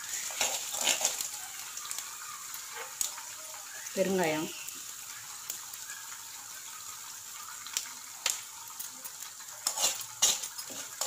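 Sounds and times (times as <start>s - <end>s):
spices sizzling in hot oil: 0.0s - 11.0s
metal spoon scraping pan: 0.1s - 1.3s, 9.6s - 11.0s.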